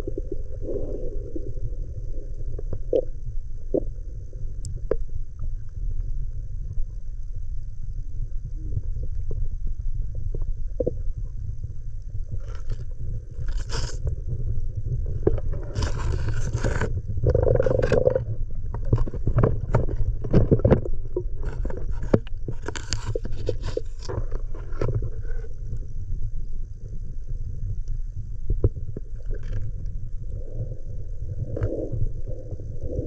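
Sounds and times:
underwater clicks and crackles: 0:00.0 - 0:33.0
underwater rumble of moving water: 0:00.0 - 0:33.0
short scraping noises: 0:13.4 - 0:14.1, 0:15.5 - 0:18.2.

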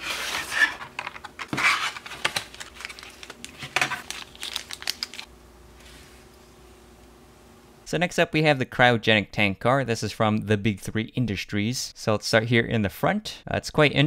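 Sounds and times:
plastic packaging crinkling and clicking: 0:00.3 - 0:05.3.

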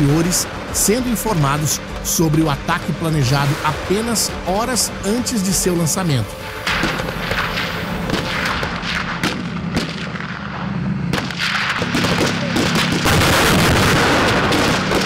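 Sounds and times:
low drone: 0:00.0 - 0:15.0
gunshots and blasts: 0:06.6 - 0:15.0.

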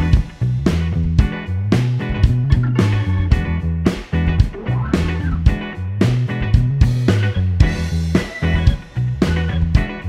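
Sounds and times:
music with steady beat: 0:00.0 - 0:10.0.

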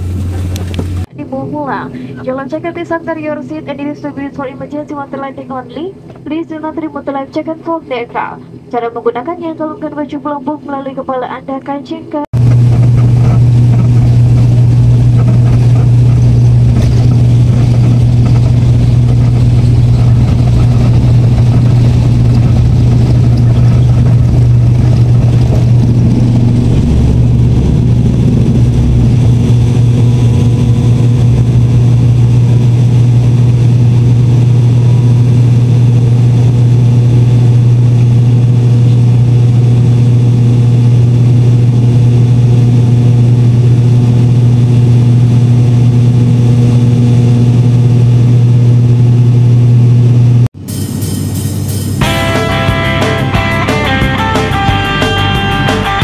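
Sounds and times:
propeller engine drone: 0:00.0 - 0:56.0
low rumble: 0:12.3 - 0:56.0.

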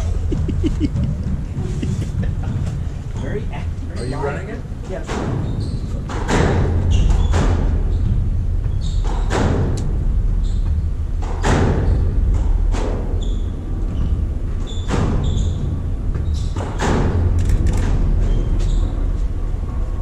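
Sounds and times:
court shoes squeaking: 0:00.0 - 0:03.4, 0:05.4 - 0:09.5, 0:10.4 - 0:10.8, 0:13.2 - 0:16.8, 0:18.2 - 0:19.1
low rumble: 0:00.0 - 0:04.8, 0:06.6 - 0:14.6, 0:15.2 - 0:20.0.

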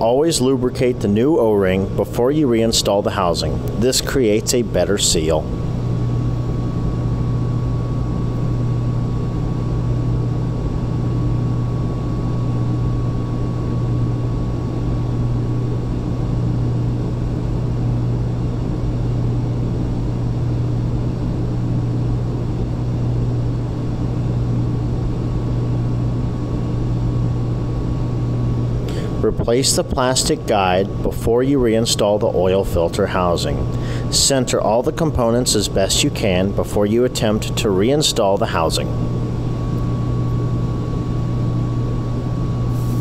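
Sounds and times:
low machinery hum: 0:00.0 - 0:43.0
thin high whine: 0:27.7 - 0:43.0.

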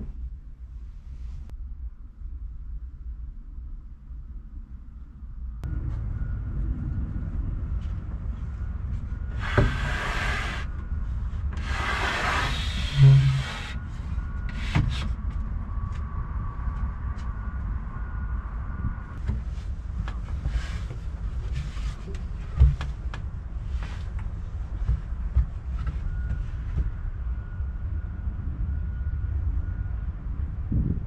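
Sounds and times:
steady low rumble: 0:00.0 - 0:31.0
wooden bed frame scraping: 0:09.3 - 0:10.7, 0:11.6 - 0:15.2.

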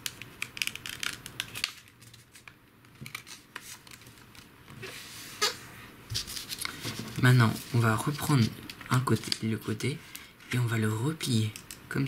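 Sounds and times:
paper crinkling and rubbing: 0:00.6 - 0:09.4.

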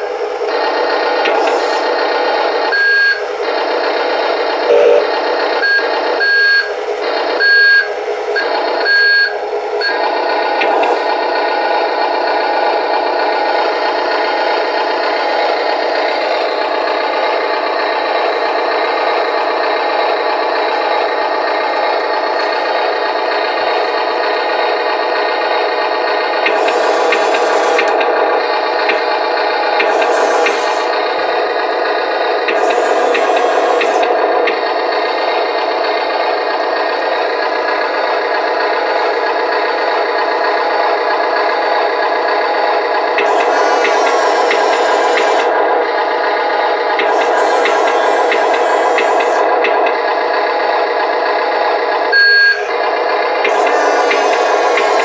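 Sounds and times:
engine sound through small speaker: 0:00.0 - 0:55.0
short warning beeps: 0:04.7 - 0:06.7.

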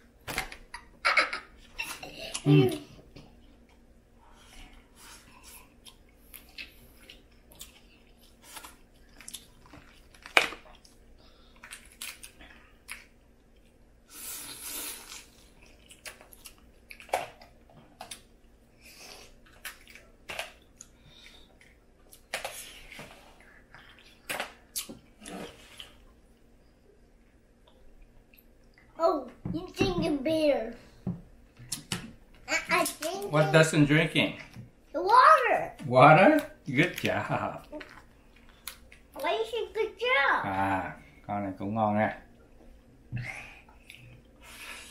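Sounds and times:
crawfish cracking and smacking: 0:08.6 - 0:11.0, 0:11.6 - 0:13.1.

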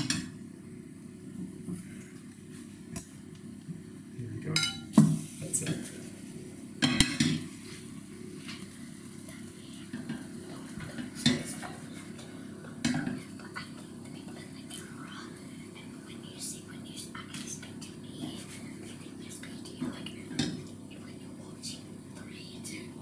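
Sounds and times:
batter frying: 0:00.0 - 0:16.6
steady low hum: 0:00.0 - 0:23.0.

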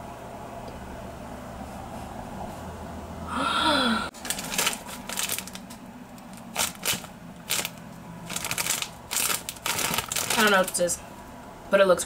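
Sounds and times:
plastic snack bag crinkling: 0:04.1 - 0:11.0.

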